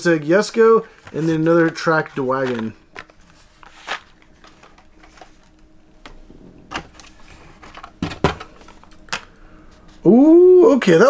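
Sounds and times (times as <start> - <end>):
plastic and card clicking: 1.0 - 5.4.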